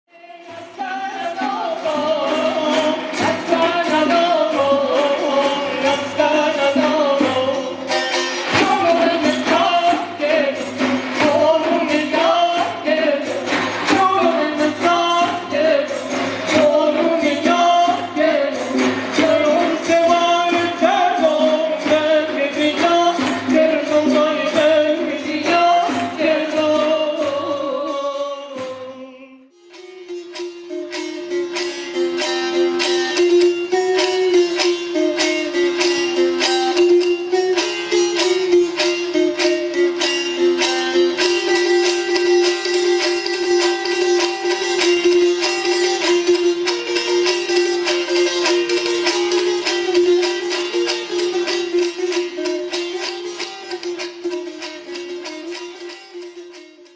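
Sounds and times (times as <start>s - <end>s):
person singing: 0.1s - 30.4s
plucked lute: 0.2s - 56.9s
frame drums beating: 0.5s - 27.7s.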